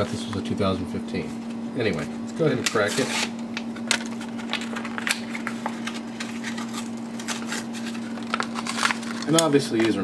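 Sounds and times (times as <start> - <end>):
plastic blister crackling and tearing: 2.7 - 10.0.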